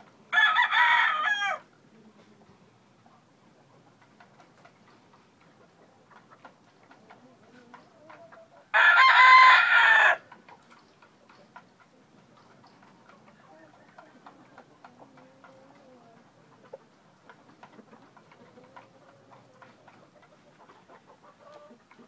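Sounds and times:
rooster crowing: 0:00.3 - 0:01.7, 0:08.7 - 0:10.3.

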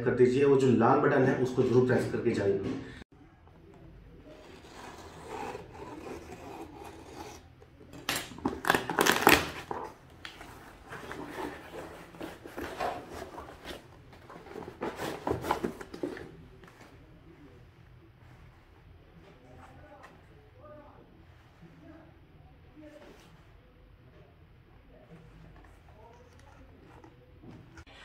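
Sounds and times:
cardboard mailer tearing: 0:04.4 - 0:07.5, 0:08.1 - 0:10.0.

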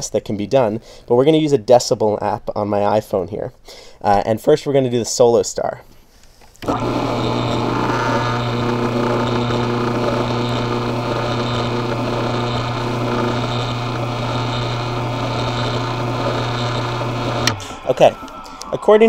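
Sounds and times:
auger bumping juicing screen: 0:06.6 - 0:18.4
juicer motor humming: 0:06.6 - 0:18.8.

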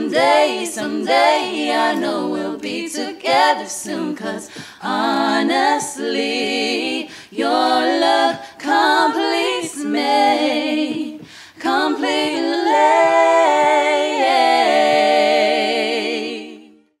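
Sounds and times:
women singing a cappella: 0:00.0 - 0:17.0.

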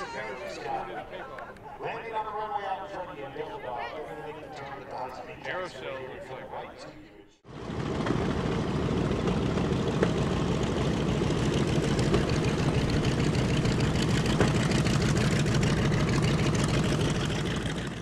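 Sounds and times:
jet engines roaring: 0:07.5 - 0:18.0.

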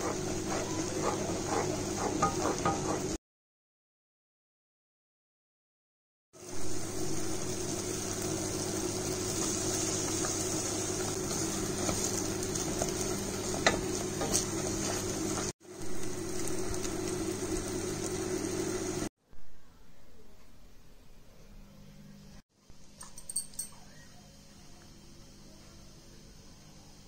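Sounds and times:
halwa sizzling in a pot: 0:00.0 - 0:03.2, 0:06.4 - 0:19.1
spatula stirring and scraping: 0:00.0 - 0:03.2, 0:09.3 - 0:15.5.

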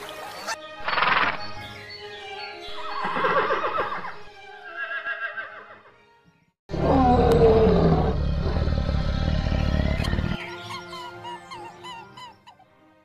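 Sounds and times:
lion roaring: 0:06.7 - 0:10.4.

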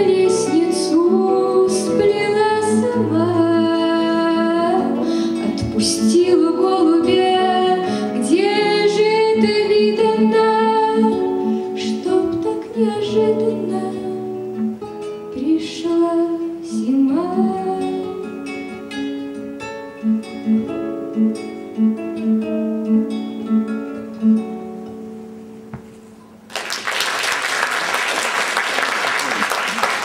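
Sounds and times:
two guitars playing: 0:00.0 - 0:26.5.

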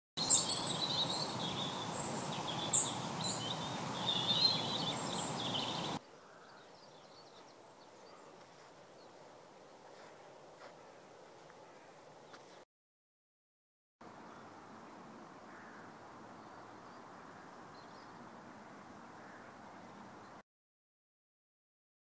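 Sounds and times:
outdoor background hiss: 0:00.2 - 0:12.6, 0:14.0 - 0:20.4
small birds chirping: 0:00.2 - 0:12.6.

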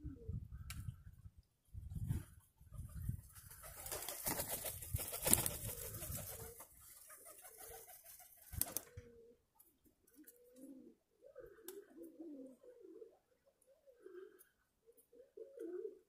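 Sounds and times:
pigeons cooing: 0:00.0 - 0:00.6, 0:05.2 - 0:09.5, 0:10.1 - 0:16.0.

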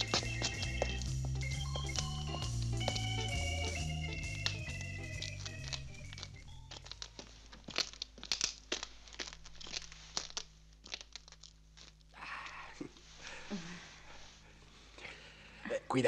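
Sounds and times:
organ music: 0:00.0 - 0:07.0
footsteps on gravel: 0:00.0 - 0:12.0.

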